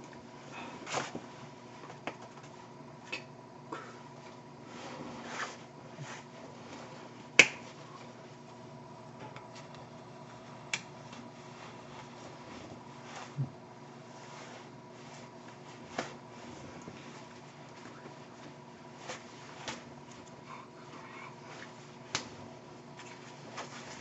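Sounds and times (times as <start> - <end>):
faint electrical hum: 0.0 - 24.0
hands clapping: 7.4 - 7.6.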